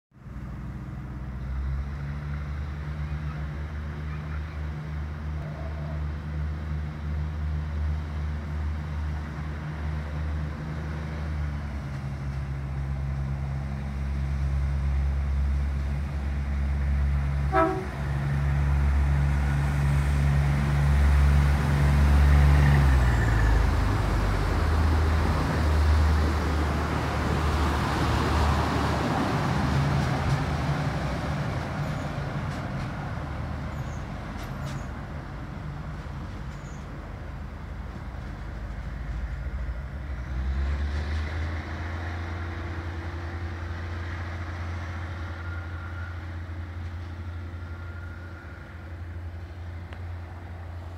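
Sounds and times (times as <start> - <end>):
diesel train engine running: 6.0 - 50.9
train horn toot: 17.5 - 18.2.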